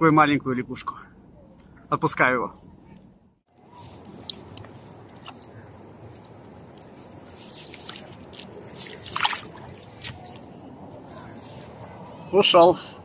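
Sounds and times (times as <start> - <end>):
shallow water splashing: 7.2 - 10.6.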